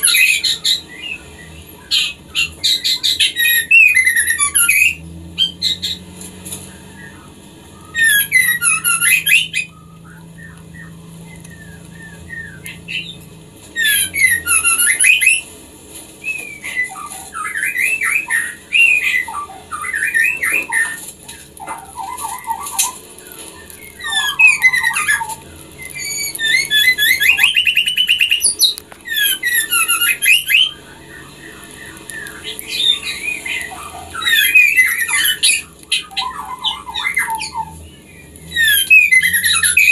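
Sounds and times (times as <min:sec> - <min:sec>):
bird chattering calls: 0:00.0 - 0:15.5, 0:16.2 - 0:39.9
bird whistles and squeaks: 0:00.0 - 0:15.5, 0:16.2 - 0:39.9.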